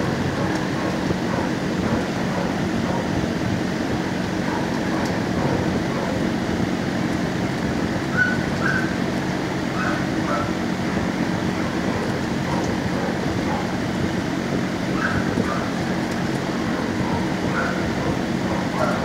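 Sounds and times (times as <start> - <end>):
dogs barking with echo: 0.0 - 3.4, 4.3 - 6.4, 8.1 - 9.0, 9.7 - 10.7, 11.5 - 13.9, 14.9 - 19.0
ventilation hum: 0.0 - 19.0
dog yelps: 8.1 - 9.0, 9.7 - 10.6, 14.9 - 15.8, 16.7 - 19.0.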